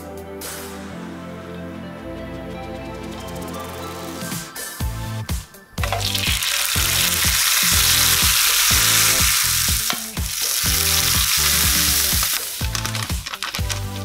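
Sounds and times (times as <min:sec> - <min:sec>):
rice paper sizzling in hot oil: 0:05.8 - 0:14.0.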